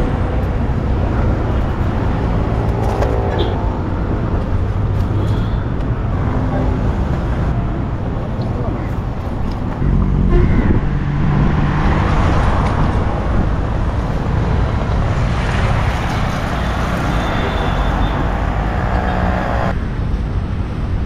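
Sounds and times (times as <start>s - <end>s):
road traffic passing: 0.0s - 21.0s.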